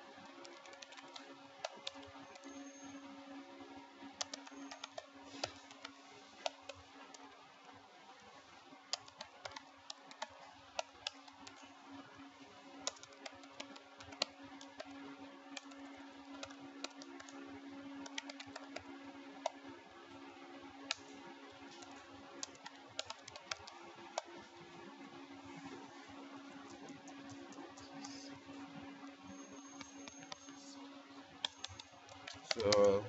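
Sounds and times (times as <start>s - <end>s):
faint steady hum: 0.0s - 33.0s
keyboard typing clicks: 0.3s - 3.1s, 4.2s - 7.3s, 8.9s - 11.6s, 12.8s - 19.6s, 20.8s - 24.4s, 26.6s - 28.4s, 29.0s - 30.8s, 31.4s - 33.0s.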